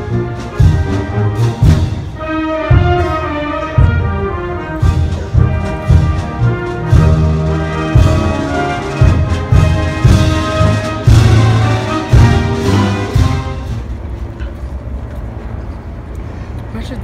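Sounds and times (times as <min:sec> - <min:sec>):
brass band playing a march: 0:00.0 - 0:14.3.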